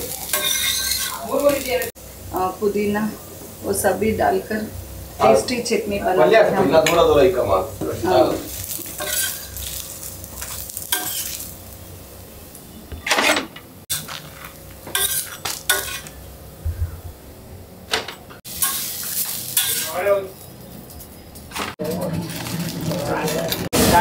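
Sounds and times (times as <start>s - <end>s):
metal spatula scraping griddle: 0.0s - 1.8s, 8.1s - 11.5s, 13.1s - 16.2s, 18.6s - 20.0s
faint sizzle: 0.0s - 13.0s, 13.8s - 24.0s
steel plates clinking: 0.3s - 1.2s, 13.0s - 16.1s.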